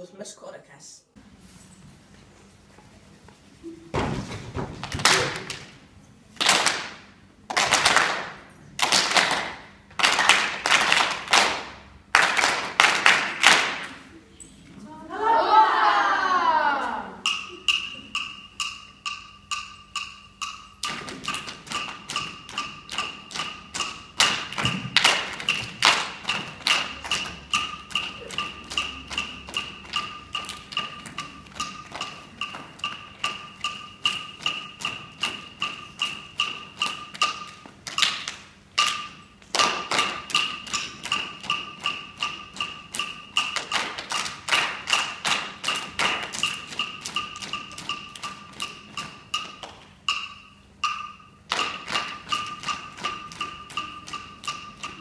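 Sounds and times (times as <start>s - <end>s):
wooden percussion beat: 6.6s - 14.2s, 17.1s - 55.0s.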